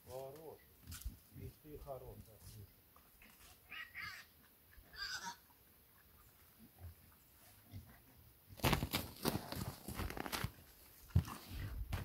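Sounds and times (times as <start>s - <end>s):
pigs squealing: 3.7s - 5.4s.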